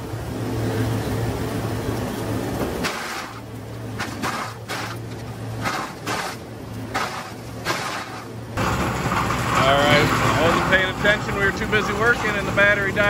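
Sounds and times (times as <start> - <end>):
tractor diesel engine hum: 0.0 - 13.0
wood chipper chipping branches: 2.8 - 13.0
man talking: 9.6 - 13.0.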